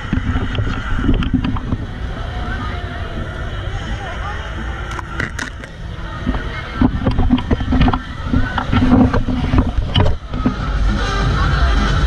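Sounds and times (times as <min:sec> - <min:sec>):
crowd hubbub: 0:00.0 - 0:12.0
low rumble on microphone: 0:00.0 - 0:12.0.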